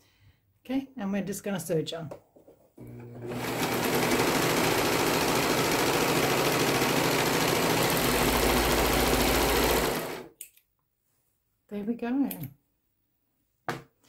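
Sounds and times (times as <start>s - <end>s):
serger stitching fabric: 2.8s - 10.3s.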